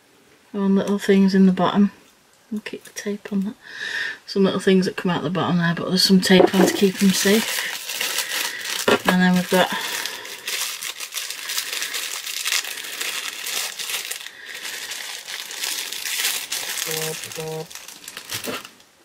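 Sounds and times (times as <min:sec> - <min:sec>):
crinkly packaging rustling: 0:06.3 - 0:18.9.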